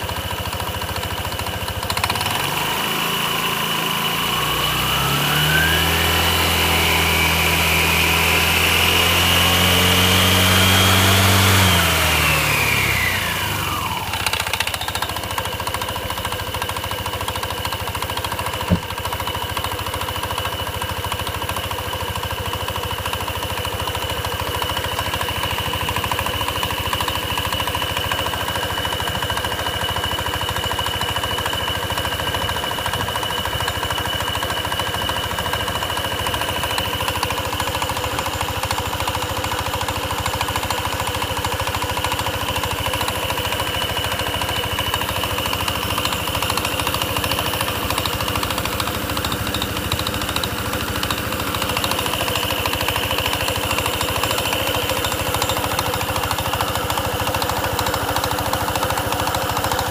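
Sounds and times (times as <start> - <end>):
scooter engine revving and idling: 0.0 - 59.9.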